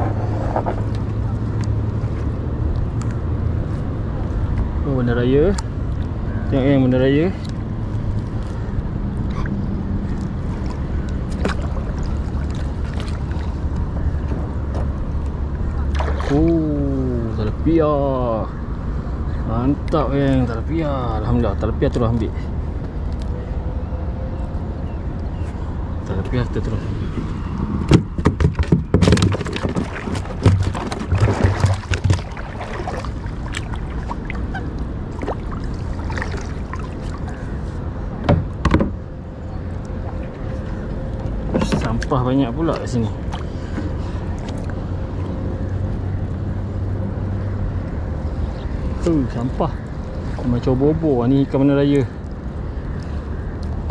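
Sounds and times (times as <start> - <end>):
wind rumble on microphone: 0.0 - 17.8
water splashing: 9.2 - 17.6, 28.6 - 38.1
hollow knocks on plastic kayak: 27.9 - 32.4.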